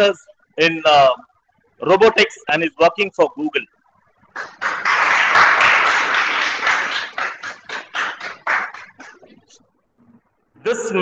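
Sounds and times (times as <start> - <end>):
audience applauding: 4.3 - 9.3.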